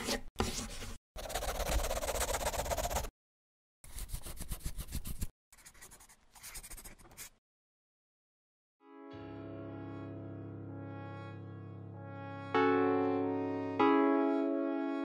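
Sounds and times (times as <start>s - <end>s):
scribbling on paper: 1.2s - 3.1s, 3.9s - 7.4s.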